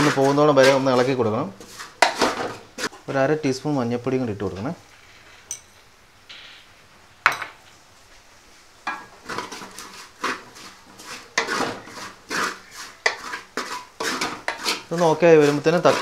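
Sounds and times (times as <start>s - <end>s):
wooden spatula scraping metal pot: 0.0s - 3.2s, 8.9s - 16.0s.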